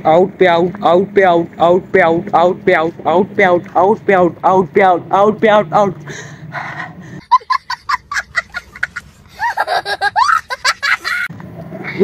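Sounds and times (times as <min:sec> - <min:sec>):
young child laughing and squealing: 0:07.3 - 0:12.0.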